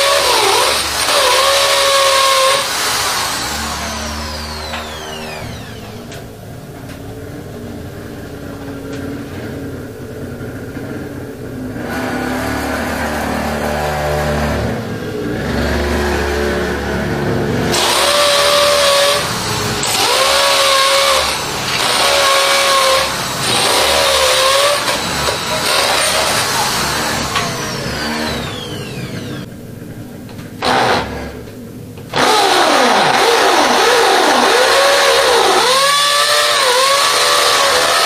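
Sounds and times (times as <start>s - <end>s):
electric drill boring into wall: 0.0s - 6.2s, 17.7s - 29.5s, 30.6s - 31.4s, 32.1s - 38.0s.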